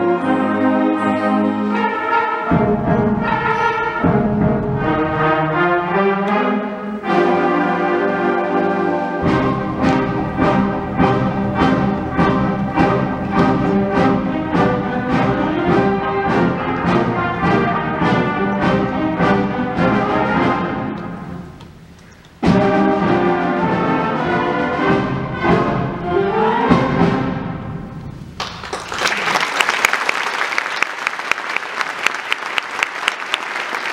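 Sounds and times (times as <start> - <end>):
symphonic band playing: 0.0 - 28.4
audience applause: 28.4 - 33.9.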